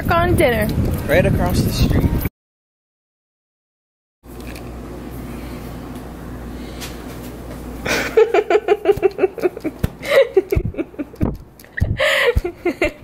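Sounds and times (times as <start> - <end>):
person laughing: 7.8 - 13.0.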